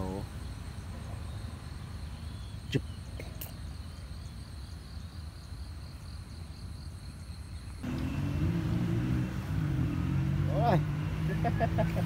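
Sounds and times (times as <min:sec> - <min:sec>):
high insect trill: 0:00.0 - 0:12.0
motor vehicle engine: 0:07.8 - 0:12.0.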